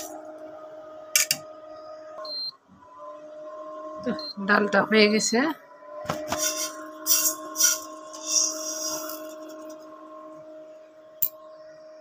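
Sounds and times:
steady electric hum: 0.0s - 12.0s
dry grains poured into a pot: 7.1s - 9.7s.

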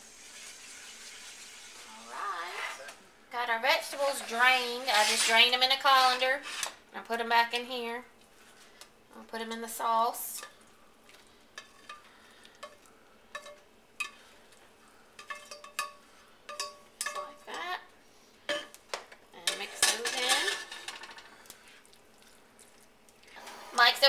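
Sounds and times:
spoon scraping metal pot: 4.1s - 6.8s, 19.5s - 21.2s
spoon stirring sauce: 10.3s - 14.6s.

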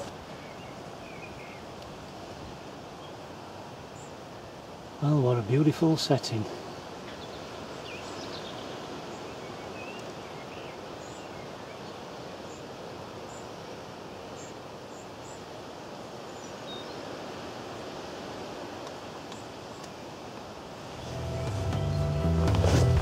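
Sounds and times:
small birds chirping: 0.0s - 1.8s, 6.6s - 18.0s, 19.1s - 20.1s, 20.9s - 22.4s
wind: 0.0s - 23.0s.

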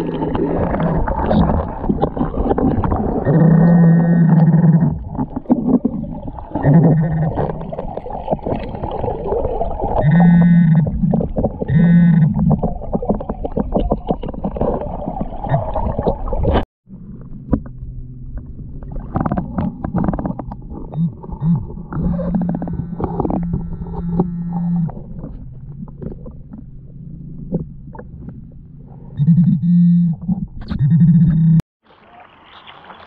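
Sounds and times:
water rushing against camera: 0.0s - 28.4s
metal detector buzzing underwater: 3.2s - 7.8s, 10.0s - 12.9s, 16.9s - 31.6s.

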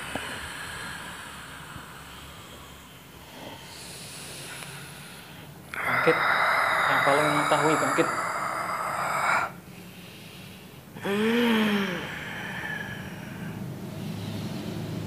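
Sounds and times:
man breathing hard: 0.0s - 15.0s
man groaning: 5.7s - 9.5s.

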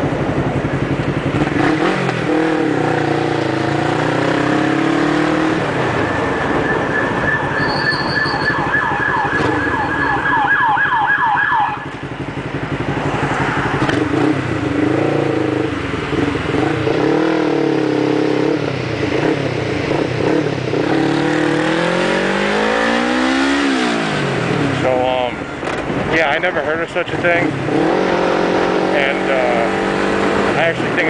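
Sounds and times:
motorcycle engine: 0.0s - 31.0s
siren yelping: 6.0s - 12.0s.

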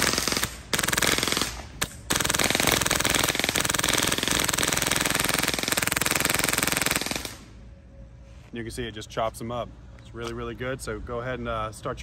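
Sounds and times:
airsoft gun firing full auto: 0.0s - 7.5s.

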